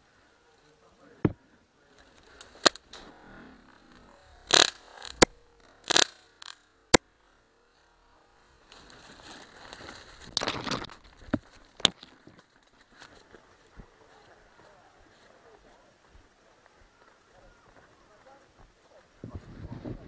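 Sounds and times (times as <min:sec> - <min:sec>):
paintball markers firing: 0:02.5 - 0:03.1, 0:04.5 - 0:07.0
rustle of brush: 0:08.6 - 0:10.3.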